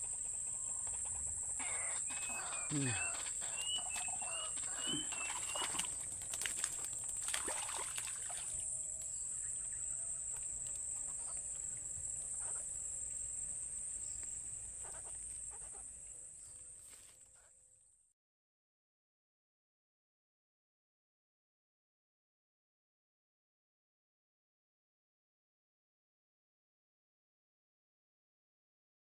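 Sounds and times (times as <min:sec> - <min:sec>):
bird chirping: 0:00.0 - 0:06.2, 0:08.4 - 0:16.7
insects trilling: 0:00.0 - 0:17.6.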